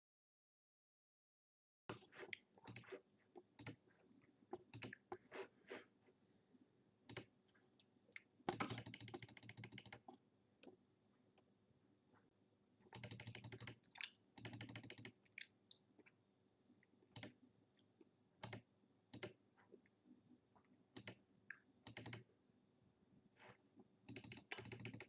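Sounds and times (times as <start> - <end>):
computer mouse clicks: 1.9 - 3.0, 3.6 - 3.8, 7.1 - 7.3, 8.5 - 10.1, 12.9 - 13.8, 14.4 - 15.2, 17.1 - 17.4, 18.4 - 19.4, 21.0 - 21.2, 21.8 - 22.3, 24.1 - 25.0.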